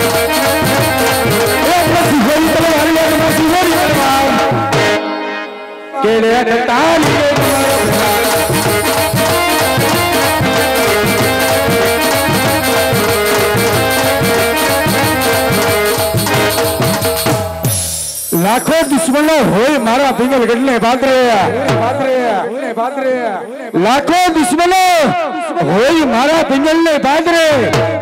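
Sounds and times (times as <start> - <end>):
steady drum rhythm: 0.0 - 5.0, 6.9 - 22.6
folk music melody: 0.0 - 21.7.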